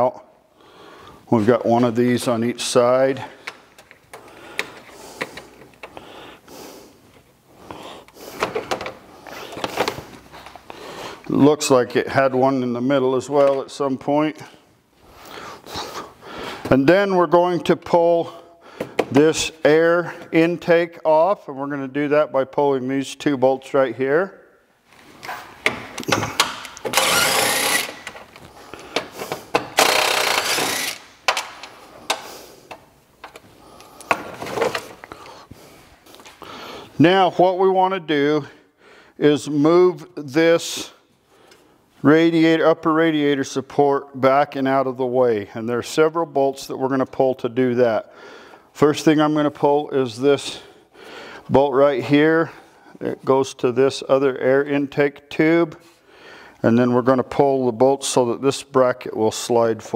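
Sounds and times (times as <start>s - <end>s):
bolts clicking and clinking: 3.4s - 6.0s, 25.2s - 35.2s
cordless ratchet running: 26.9s - 28.1s, 29.8s - 31.1s.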